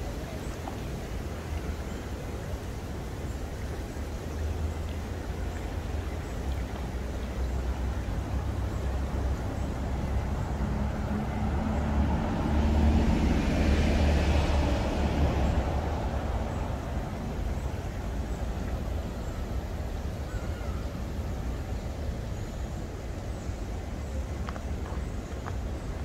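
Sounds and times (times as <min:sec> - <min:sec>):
low city rumble: 0:00.0 - 0:26.0
vehicle passing: 0:08.9 - 0:18.6.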